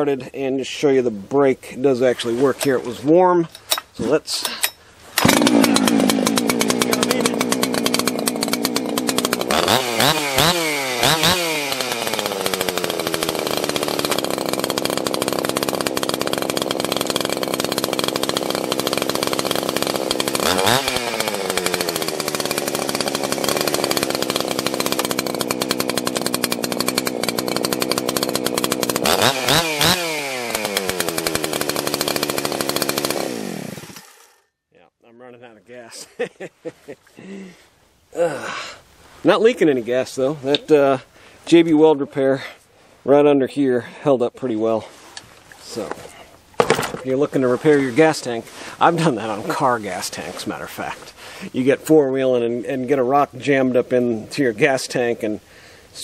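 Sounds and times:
chainsaw idling and revving: 5.2s - 34.5s, 35.9s - 36.5s, 45.3s - 53.6s.

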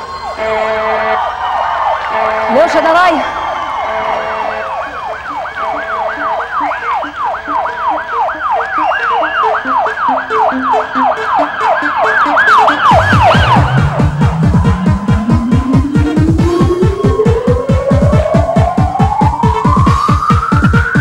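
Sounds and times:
dance music: 0.0s - 21.0s
siren-style yelp effect: 0.0s - 21.0s
electronic blips: 4.9s - 15.3s.

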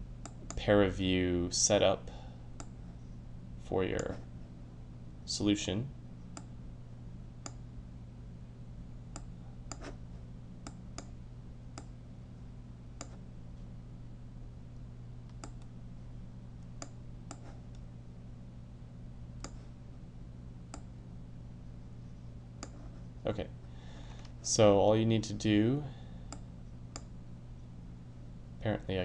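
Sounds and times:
low electrical hum: 0.0s - 29.0s
computer mouse clicks: 13.0s - 13.2s, 15.3s - 15.7s, 19.4s - 19.6s.

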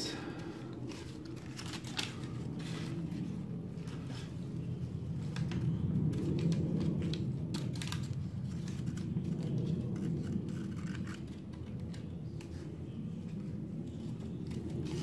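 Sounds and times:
low background hum: 0.0s - 15.0s
scissors snipping paper: 6.2s - 12.7s.

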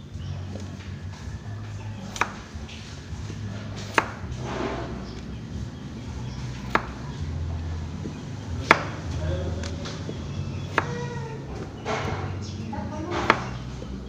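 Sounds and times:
knife knocking on cutting board: 10.7s - 11.0s, 13.1s - 13.6s.

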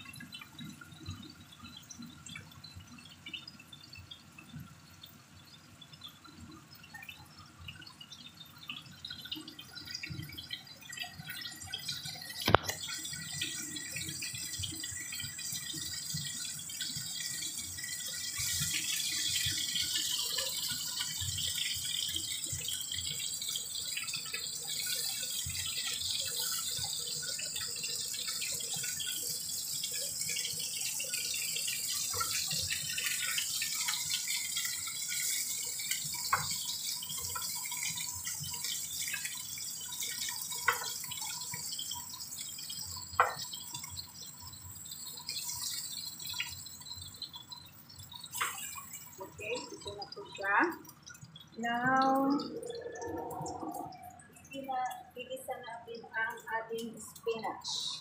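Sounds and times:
chicken sizzling in frying pan: 9.3s - 50.8s.

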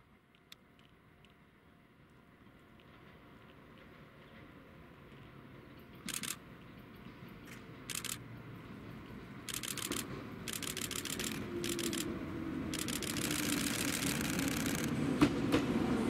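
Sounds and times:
train hum: 0.0s - 16.0s
electric train rumble: 2.3s - 16.0s
camera shutters clicking rapidly: 6.1s - 6.4s, 7.9s - 8.2s, 9.5s - 12.1s, 12.7s - 15.0s.

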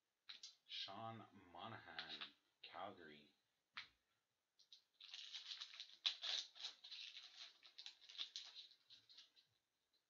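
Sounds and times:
foil wrapper crinkling and tearing: 5.0s - 9.4s.

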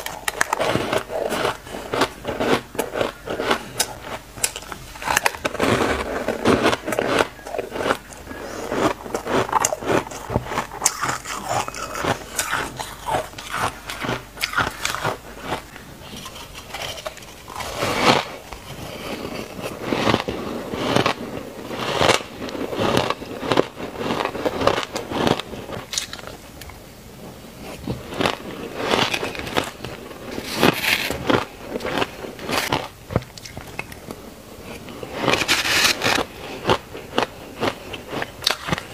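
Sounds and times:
ice being crunched: 0.0s - 21.2s.

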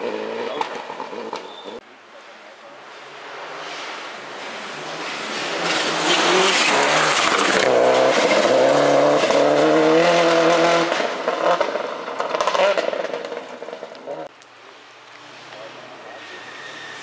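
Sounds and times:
rally car engine high-revving: 0.0s - 1.8s, 3.2s - 14.3s
gravel sprayed from tyres: 11.7s - 17.0s.

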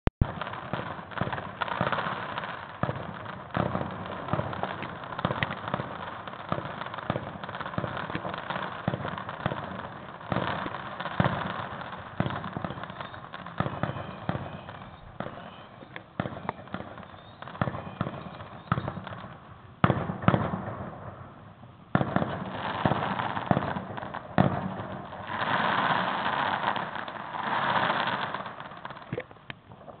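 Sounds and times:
hissing crackle: 0.2s - 19.7s
fireworks bangs and crackles: 0.2s - 30.0s.

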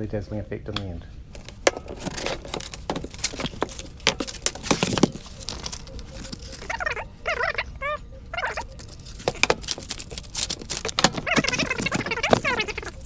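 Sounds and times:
paper sheet crinkling: 1.4s - 13.0s
short squeaky chirps: 3.3s - 13.0s.

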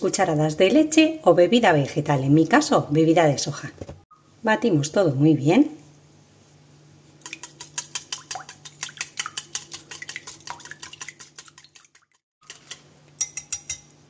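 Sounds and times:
whisk clicking against glass bowl: 7.2s - 13.9s.

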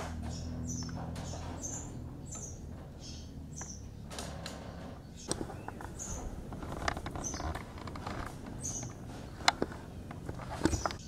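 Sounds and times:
bird chirping: 0.0s - 11.0s
low background rumble: 0.0s - 11.0s
sharp clicks: 3.6s - 11.0s.

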